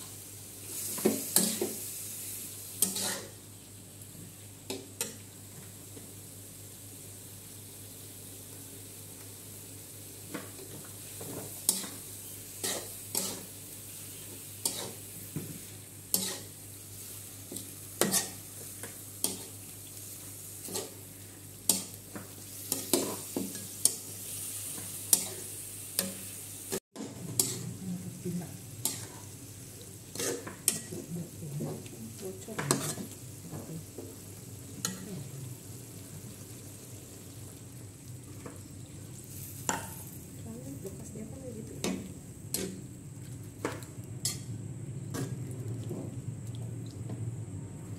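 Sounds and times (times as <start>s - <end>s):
frying sizzle: 0.0s - 47.9s
metal spatula scraping wok: 2.8s - 3.4s, 11.7s - 13.5s, 14.6s - 15.1s, 16.2s - 16.6s, 18.0s - 18.5s, 27.0s - 27.7s, 30.1s - 31.7s, 32.6s - 33.2s.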